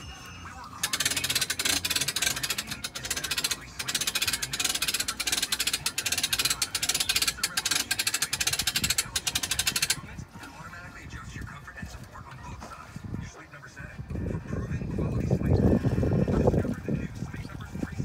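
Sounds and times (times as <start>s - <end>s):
winch ratchet clicking: 0.8s - 10.1s.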